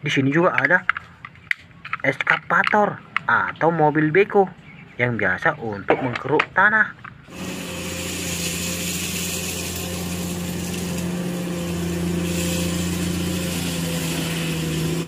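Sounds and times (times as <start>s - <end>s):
excavator diesel engine running: 7.2s - 15.0s
hydraulic hiss: 7.3s - 15.0s.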